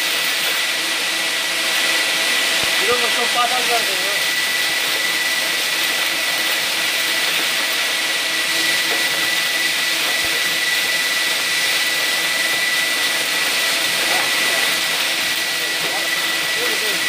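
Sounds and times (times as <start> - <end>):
industrial vacuum cleaner running: 0.0 - 17.0.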